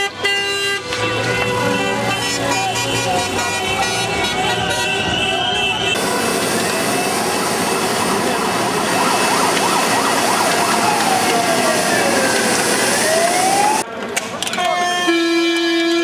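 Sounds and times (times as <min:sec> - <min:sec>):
crowded street noise: 0:00.0 - 0:16.0
siren wailing: 0:05.0 - 0:13.8.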